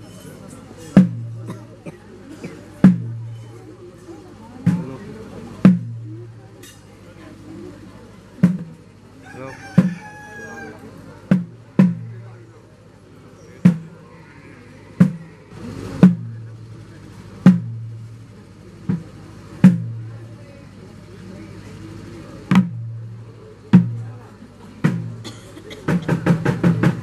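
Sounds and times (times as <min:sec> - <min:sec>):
drum beats: 0:01.0 - 0:01.6, 0:02.8 - 0:03.5, 0:04.6 - 0:06.7, 0:08.4 - 0:08.9, 0:09.8 - 0:10.0, 0:11.3 - 0:12.4, 0:13.6 - 0:14.0, 0:15.0 - 0:15.4, 0:16.0 - 0:18.2, 0:18.8 - 0:20.3, 0:22.5 - 0:24.2, 0:24.8 - 0:27.0.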